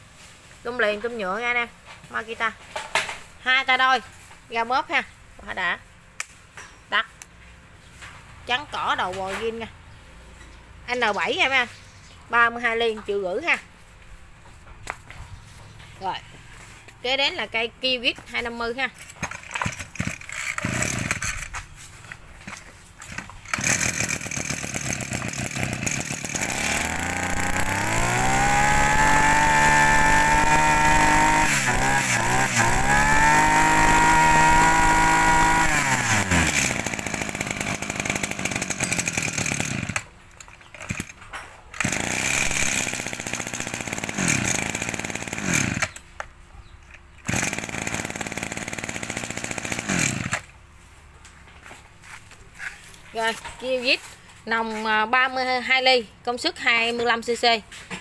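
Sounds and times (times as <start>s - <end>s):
brush cutter engine revving: 18.4s - 40.1s, 40.7s - 46.1s, 47.2s - 50.6s.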